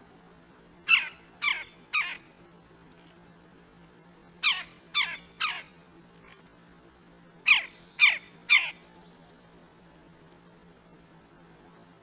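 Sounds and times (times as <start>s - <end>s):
woodpecker calling: 0.9s - 2.3s, 4.4s - 5.8s, 7.4s - 8.8s.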